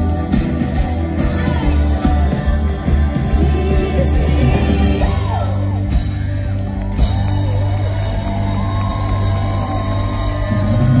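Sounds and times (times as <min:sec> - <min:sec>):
live pop rock band: 0:00.0 - 0:11.0
woman singing: 0:00.8 - 0:05.6.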